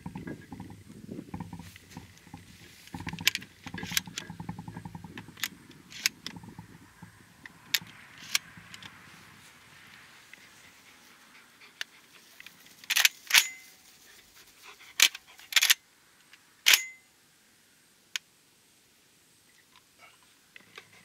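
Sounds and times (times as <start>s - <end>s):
metallic clicks of shotgun handling: 11.8s - 13.6s, 15.0s - 17.0s.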